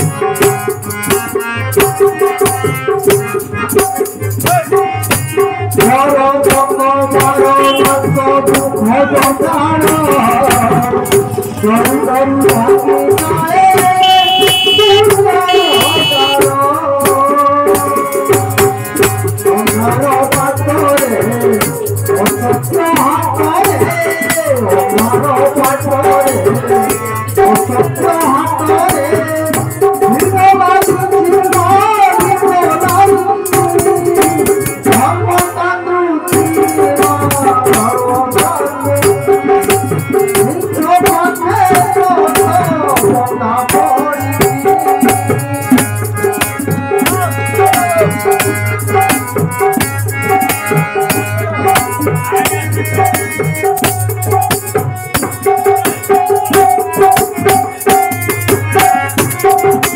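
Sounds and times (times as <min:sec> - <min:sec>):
harmonium holding notes: 0:00.0 - 0:20.9, 0:21.8 - 0:59.9
hand drum: 0:00.0 - 0:35.6, 0:36.3 - 0:59.9
rattling percussion: 0:00.0 - 0:35.6, 0:36.3 - 0:59.9
person singing: 0:05.8 - 0:18.7.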